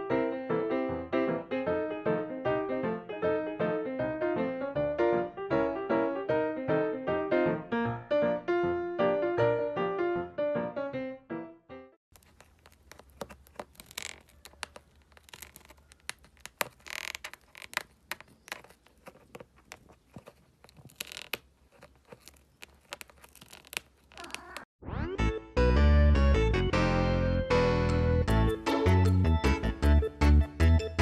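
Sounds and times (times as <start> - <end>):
piano music: 0.0 - 11.9, 24.9 - 31.0
kitten gnawing on box: 12.1 - 24.7.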